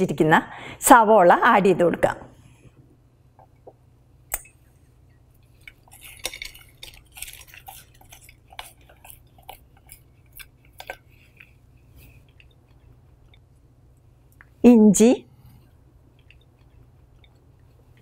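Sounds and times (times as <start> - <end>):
onion slices rustling: 5.5 - 12.7.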